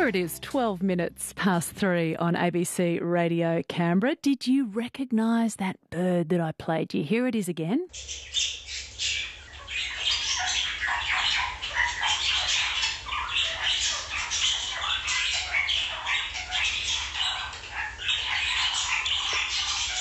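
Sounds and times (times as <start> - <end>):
parrots calling: 7.9 - 20.0.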